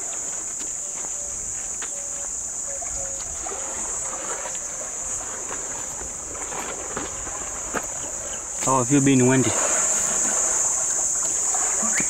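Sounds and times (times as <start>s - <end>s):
insects shrilling: 7.5s - 12.0s.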